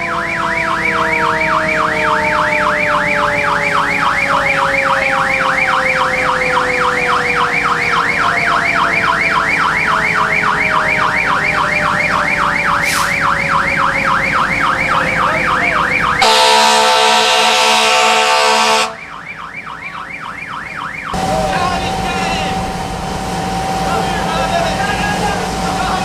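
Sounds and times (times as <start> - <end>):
electronic siren yelping: 0.0 - 26.0
low steady siren tone: 0.0 - 26.0
hiss: 12.8 - 13.2
horn-like tones: 15.1 - 19.1, 21.1 - 26.0.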